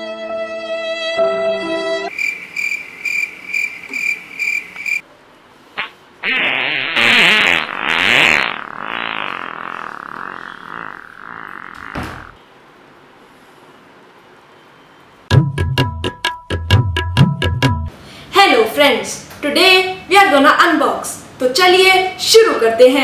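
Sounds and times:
crickets chirping: 0:02.1 - 0:05.0.

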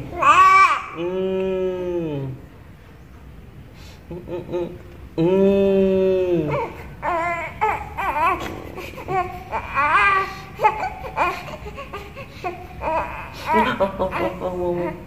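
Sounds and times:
baby crying: 0:00.1 - 0:01.2, 0:06.4 - 0:15.0.

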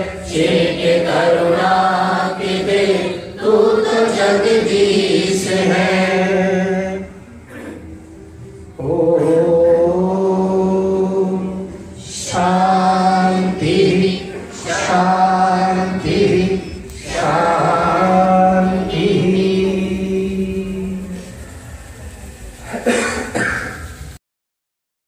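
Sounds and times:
steady low drone: 0:00.0 - 0:24.2
man singing through microphone: 0:08.7 - 0:21.4.

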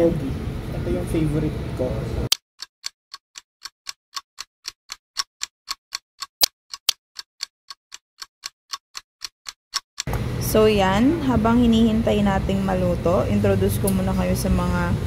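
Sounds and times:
clock ticking: 0:02.6 - 0:09.8.

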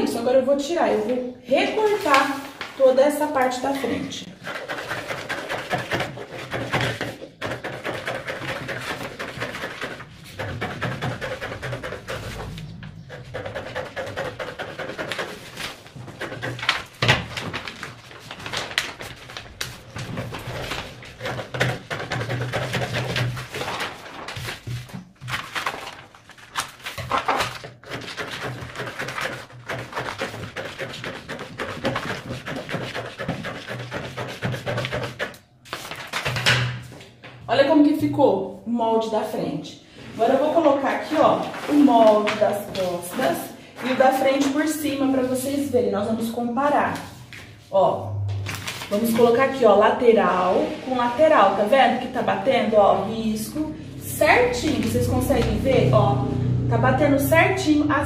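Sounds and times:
paper rustling: 0:01.7 - 0:03.0, 0:04.3 - 0:37.4, 0:40.4 - 0:45.6, 0:46.9 - 0:47.7, 0:48.3 - 0:49.6
scissors snipping paper: 0:04.3 - 0:12.2, 0:13.1 - 0:36.5.

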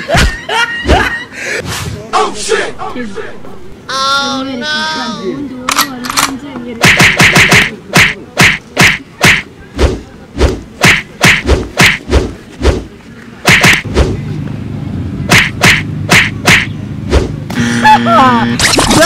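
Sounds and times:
sharp hand slaps: 0:06.8 - 0:09.4, 0:10.8 - 0:12.0, 0:13.5 - 0:13.8, 0:15.3 - 0:16.7.

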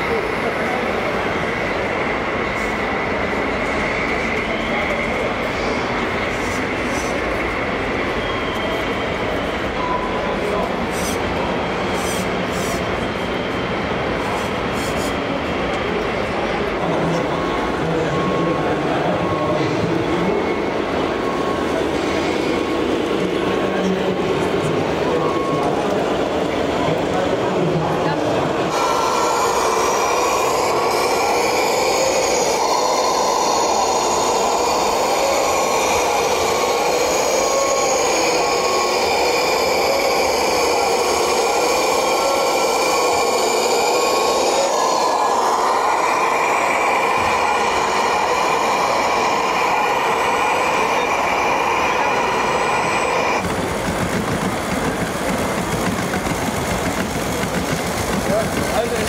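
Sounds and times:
multi-tone machine whine: 0:00.0 - 0:59.0
rough low mechanical noise: 0:28.5 - 0:59.0.

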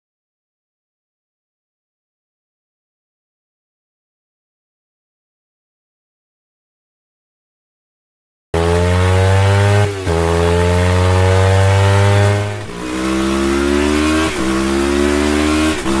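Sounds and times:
motorcycle engine accelerating: 0:08.6 - 0:16.0.

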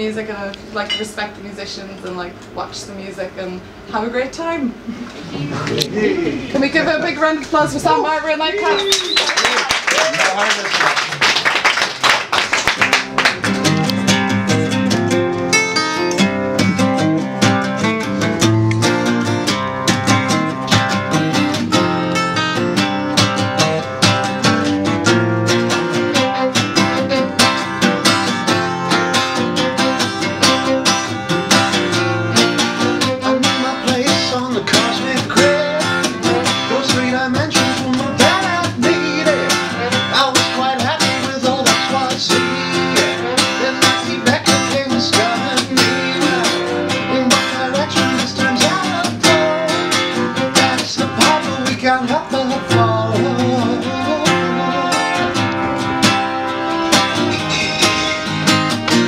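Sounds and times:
acoustic guitar strumming: 0:12.2 - 0:59.0
man singing: 0:26.1 - 0:28.2, 0:29.6 - 0:31.1, 0:31.8 - 0:55.6, 0:57.2 - 0:58.7.

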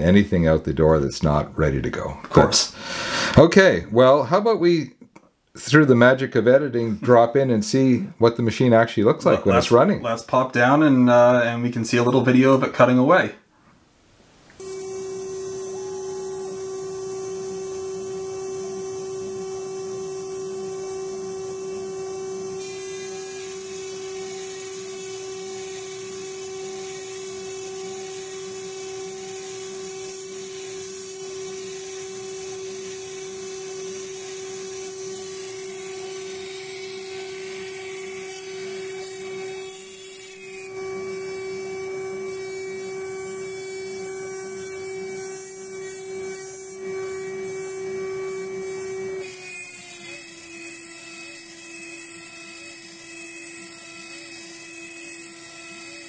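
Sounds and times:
cnc router cutting aluminium: 0:14.6 - 0:56.0.

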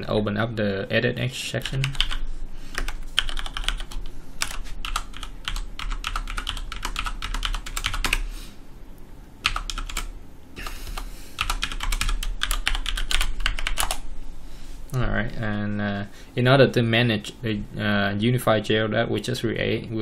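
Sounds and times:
keyboard keys clicking: 0:01.6 - 0:08.2, 0:11.4 - 0:14.0.

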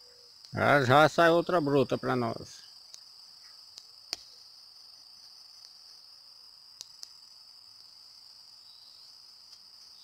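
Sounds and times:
insects chirring: 0:00.0 - 0:10.0.

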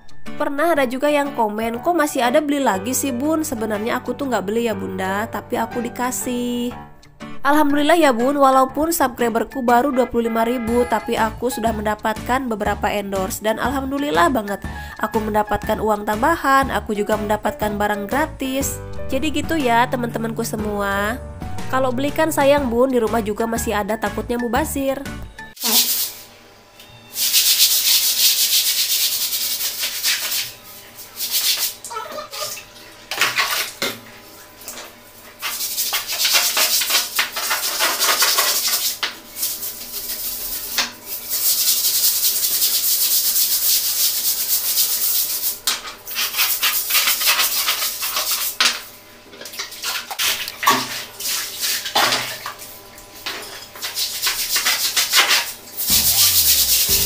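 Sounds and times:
brush scrubbing tiled floor: 0:25.6 - 0:26.4, 0:27.1 - 0:57.0.

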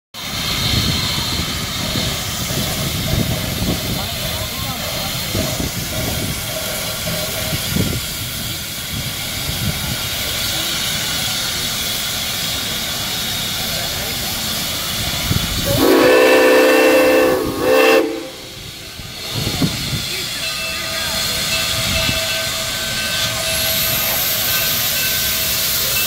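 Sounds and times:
steam hissing: 0:00.2 - 0:26.0
steam whistle blowing: 0:15.6 - 0:18.6.

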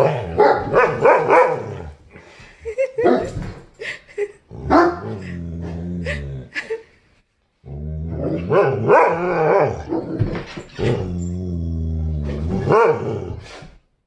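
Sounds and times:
dogs barking: 0:00.0 - 0:02.0, 0:04.7 - 0:05.1, 0:08.4 - 0:10.2, 0:12.6 - 0:13.3
dogs growling: 0:04.5 - 0:06.7, 0:07.6 - 0:13.7.

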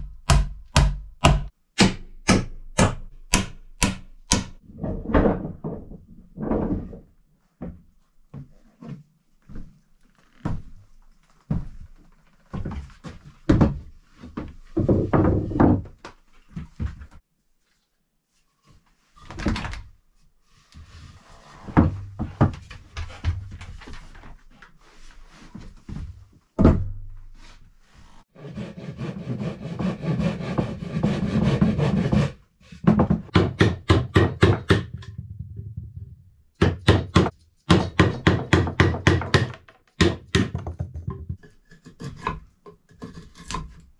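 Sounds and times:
hammer striking chisel into wood: 0:00.0 - 0:04.6, 0:33.3 - 0:35.1, 0:36.6 - 0:40.6.

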